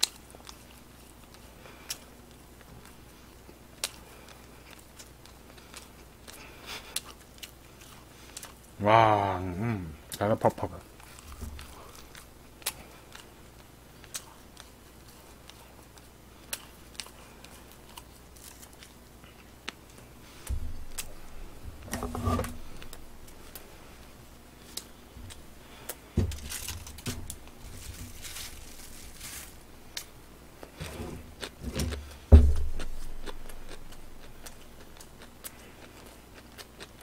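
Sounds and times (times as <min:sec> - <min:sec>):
tissue paper rustling: 0:26.4 - 0:29.7.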